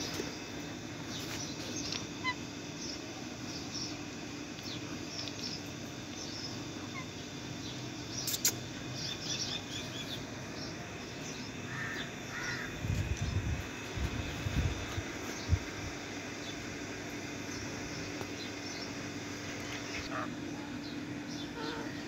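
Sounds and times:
parakeets chirping: 1.1s - 4.0s, 4.6s - 13.4s
parakeet squawks: 2.2s - 2.4s.

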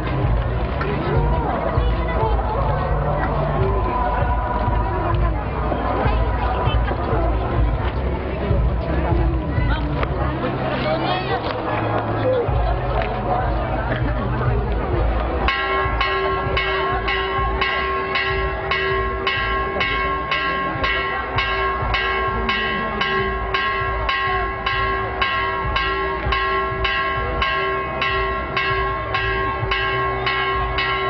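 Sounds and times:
church bell ringing fast: 15.5s - 31.0s.

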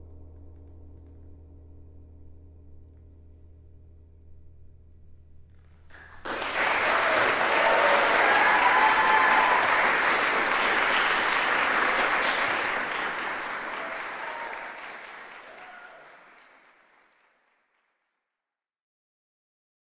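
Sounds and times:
audience applause: 5.9s - 17.9s.

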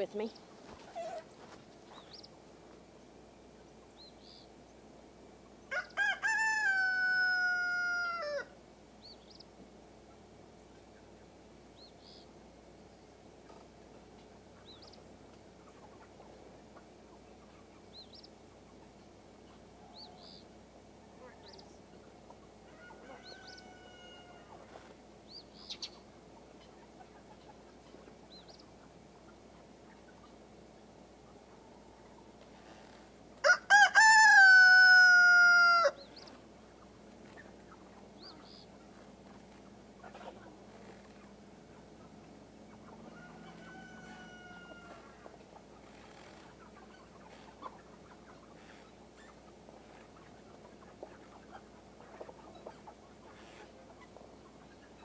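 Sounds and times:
rooster crowing: 5.7s - 8.6s, 22.6s - 24.6s, 33.4s - 36.1s, 43.0s - 45.3s.

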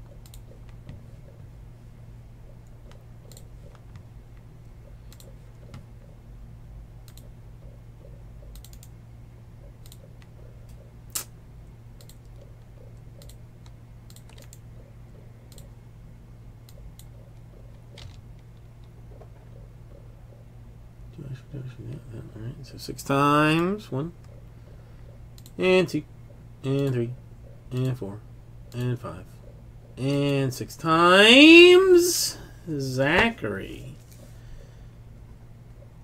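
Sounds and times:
keyboard typing clicks: 0.0s - 1.0s, 2.9s - 4.0s, 7.0s - 7.4s, 8.4s - 9.0s, 9.7s - 10.8s, 12.0s - 14.7s, 15.5s - 15.8s, 25.3s - 25.6s
steady low hum: 0.0s - 36.0s.

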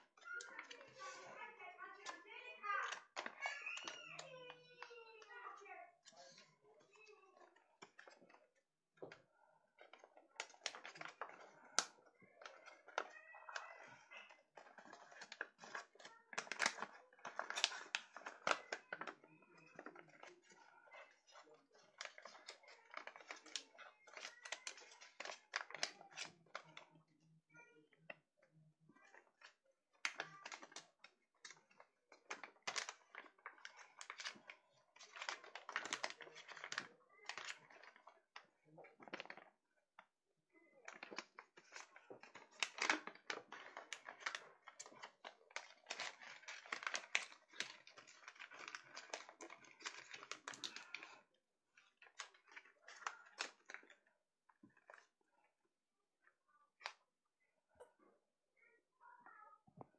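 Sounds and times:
paper rustling and crackling: 0.0s - 6.4s, 9.8s - 26.8s, 29.0s - 39.6s, 40.8s - 53.9s
sharp paper crack: 14.6s - 19.0s, 21.4s - 26.4s, 31.4s - 38.0s, 40.9s - 51.2s.

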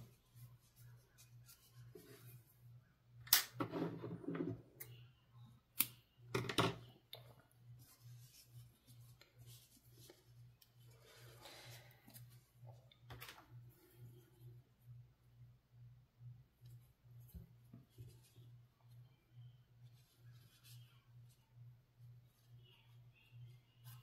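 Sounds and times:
rustling of yarn: 7.7s - 12.6s, 19.8s - 21.4s.

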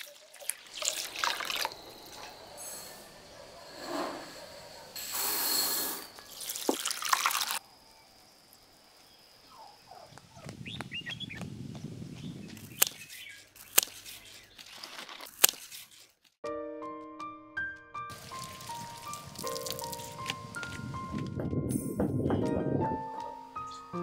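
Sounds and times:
water splashing and dripping: 0.0s - 2.4s, 6.3s - 7.6s, 18.1s - 20.8s
bird chirps: 9.0s - 11.4s
footsteps on dry dirt: 10.4s - 15.1s, 18.1s - 21.4s
scissors snipping stems: 12.6s - 16.2s.

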